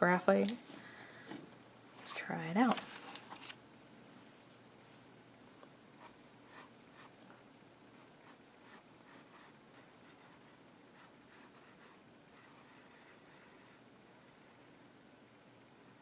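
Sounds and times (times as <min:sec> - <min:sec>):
pencil scratching on paper: 0:06.0 - 0:07.1, 0:08.2 - 0:13.8.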